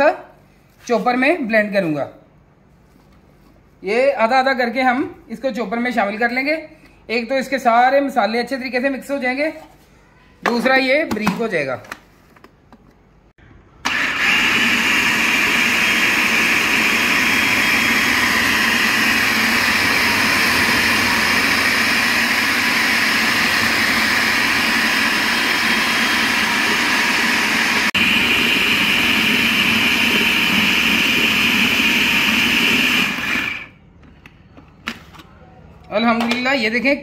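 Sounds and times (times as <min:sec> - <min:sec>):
food processor grinding meat: 0:13.9 - 0:33.7.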